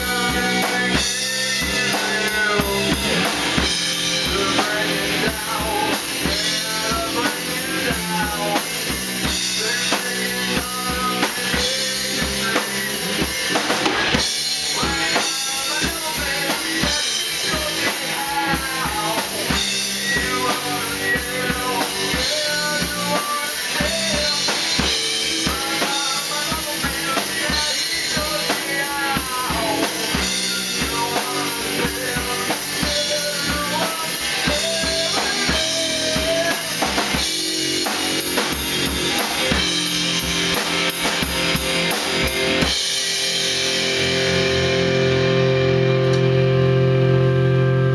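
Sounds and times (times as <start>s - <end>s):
man singing into a microphone: 0.0s - 3.4s, 4.1s - 13.3s, 14.6s - 37.2s
bass guitar: 0.0s - 47.9s
drum kit beat: 0.0s - 47.9s
electric guitars: 0.0s - 47.9s.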